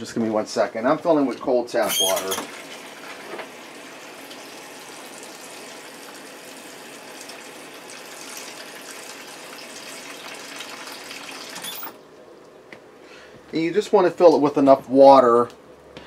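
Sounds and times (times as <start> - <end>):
tap water running: 1.0 - 12.0.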